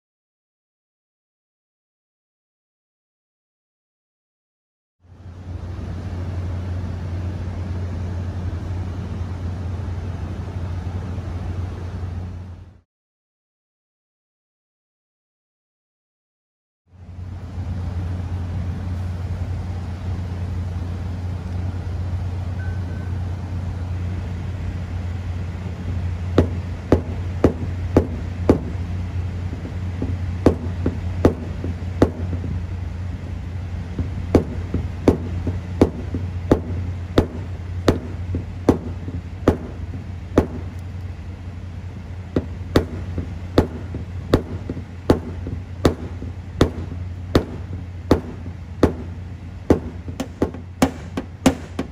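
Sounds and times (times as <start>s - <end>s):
steady low hum: 5.0s - 12.8s, 16.9s - 51.9s
hammer tapping car body panel: 34.0s - 39.8s, 42.4s - 49.1s, 49.7s - 51.9s.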